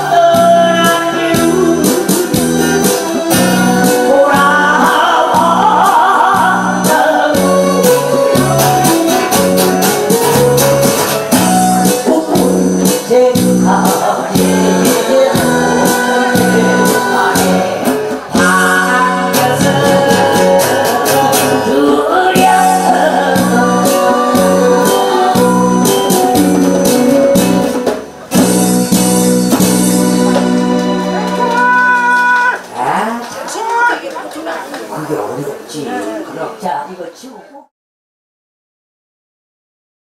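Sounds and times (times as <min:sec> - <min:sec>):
acoustic guitar strumming: 0:00.2 - 0:31.6.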